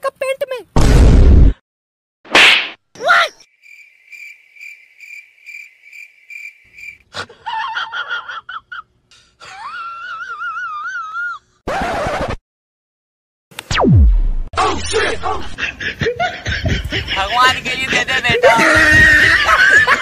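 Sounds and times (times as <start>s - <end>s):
sharp slap hit: 0.8s - 1.5s, 2.3s - 2.8s
cricket chirping: 3.4s - 7.0s.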